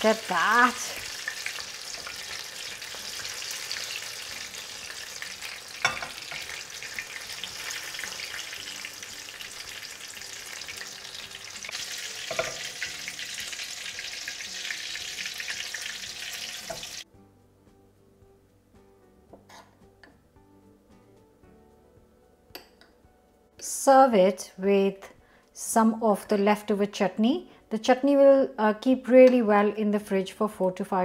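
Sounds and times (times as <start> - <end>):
food deep-frying in hot oil: 0.0 - 17.0.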